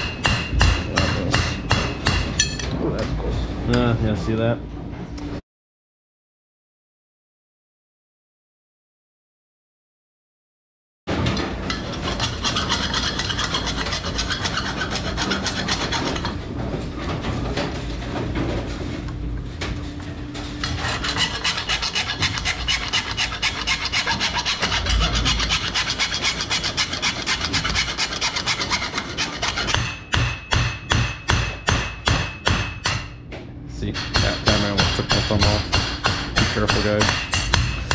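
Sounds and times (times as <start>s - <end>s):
hacksaw cutting metal: 0.0s - 2.6s, 11.7s - 16.4s, 20.6s - 33.1s, 33.9s - 37.9s.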